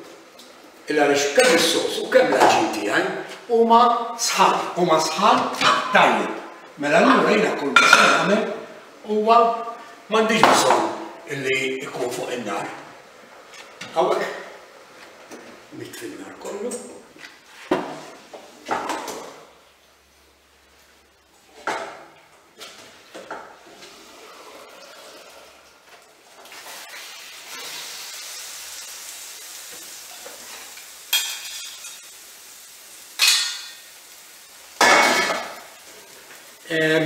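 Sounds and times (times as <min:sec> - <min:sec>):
pasta sizzling in sauce: 0:22.7 - 0:37.0
metal pot and utensils clattering: 0:30.1 - 0:32.1, 0:33.2 - 0:33.8.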